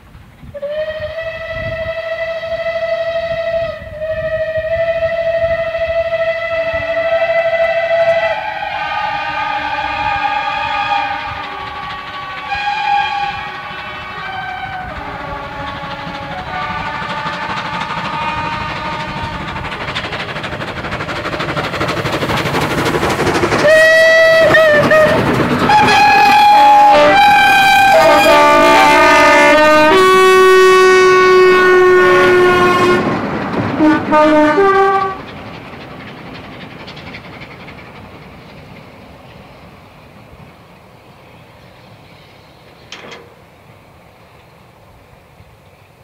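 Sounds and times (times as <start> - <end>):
train running: 0.0 - 46.0
loud train horn blasts: 0.5 - 19.6, 23.6 - 33.2, 33.8 - 35.2.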